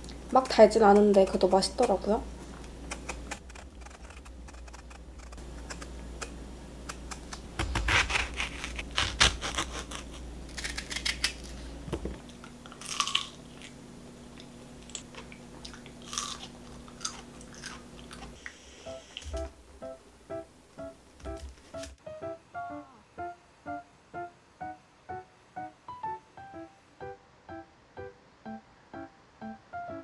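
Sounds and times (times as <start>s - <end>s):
knife cutting firm fruit: 2.6s - 11.6s
crunchy biting and chewing: 2.8s - 11.6s, 12.3s - 13.8s, 14.4s - 18.5s.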